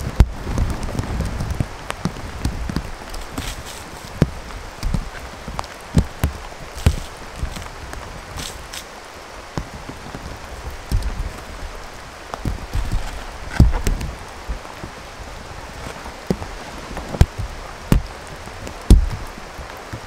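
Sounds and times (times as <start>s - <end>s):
canvas tent flapping: 0.0s - 20.0s
steady rain falling: 0.0s - 20.0s
low thuds: 12.4s - 15.0s, 15.7s - 19.3s.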